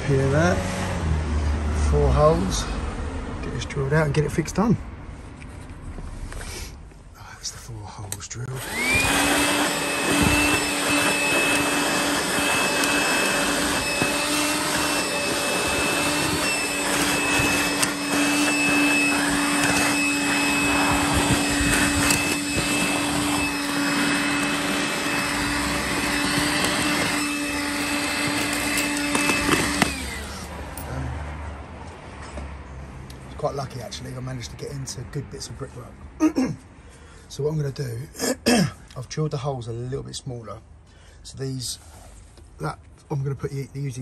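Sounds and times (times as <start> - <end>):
handheld vacuum cleaner running: 8.6 - 31.0.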